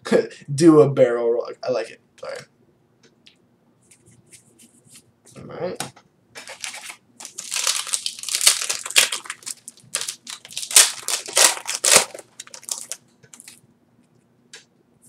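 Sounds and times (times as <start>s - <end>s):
foil wrapper crinkling: 6.4s - 13.6s.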